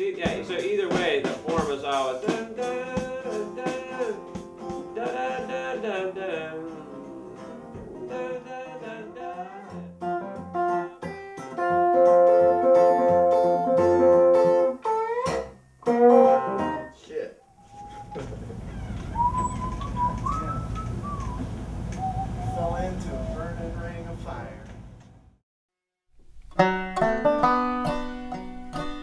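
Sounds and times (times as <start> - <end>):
plucked guitars: 0.0 - 18.6, 26.4 - 29.0.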